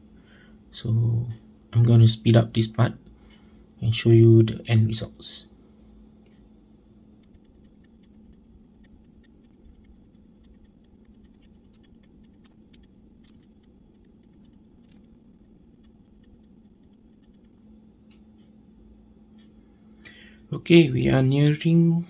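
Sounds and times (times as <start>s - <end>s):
battery charger fan hum: 0.0s - 22.0s
light ticks: 7.1s - 21.7s.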